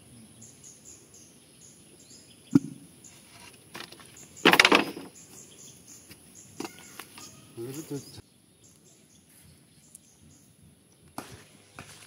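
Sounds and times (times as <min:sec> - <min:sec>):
faint birds chirping: 0:00.0 - 0:12.0
bamboo poles rattling scrape: 0:03.1 - 0:05.1.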